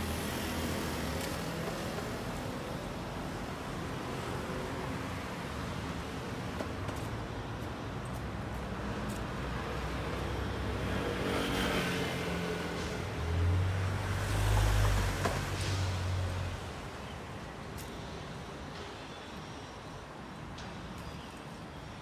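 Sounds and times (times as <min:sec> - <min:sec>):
cars driving past: 0:09.4 - 0:17.0.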